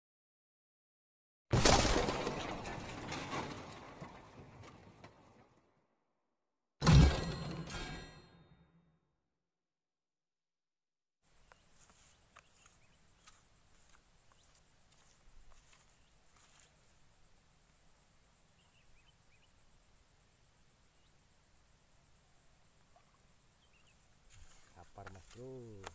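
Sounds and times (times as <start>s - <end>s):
faint bird chirps: 11.4s - 25.8s.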